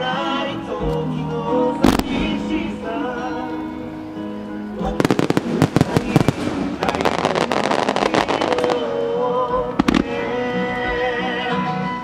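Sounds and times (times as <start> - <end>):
melodic music: 1.1 - 12.0
fireworks crackling: 1.8 - 11.0
firework bang: 5.1 - 8.8.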